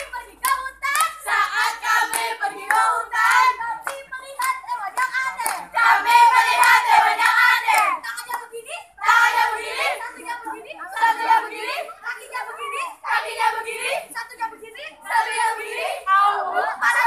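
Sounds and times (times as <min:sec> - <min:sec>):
hand claps: 0:00.0 - 0:08.5
girls chanting a cheer: 0:00.0 - 0:17.0.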